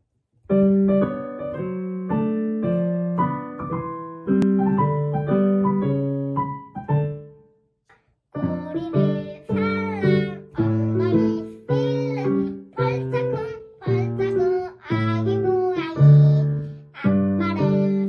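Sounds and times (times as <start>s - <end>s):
girl singing: 8.3s - 18.0s.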